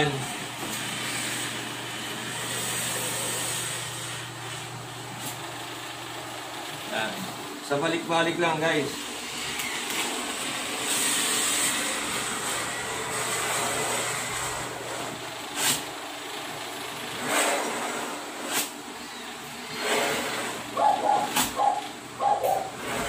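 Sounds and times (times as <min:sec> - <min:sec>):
blade scraping laminate sheet: 0:10.9 - 0:16.0, 0:17.1 - 0:21.8.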